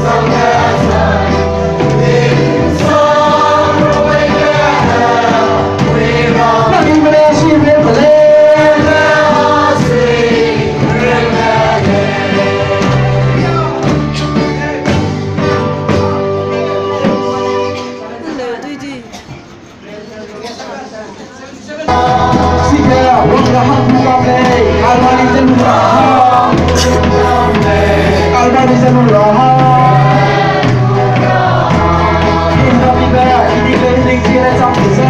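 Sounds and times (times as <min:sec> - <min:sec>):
men singing in chorus: 0:00.0 - 0:13.5, 0:21.9 - 0:35.0
instrumental accompaniment with bass: 0:00.0 - 0:18.2, 0:21.9 - 0:35.0.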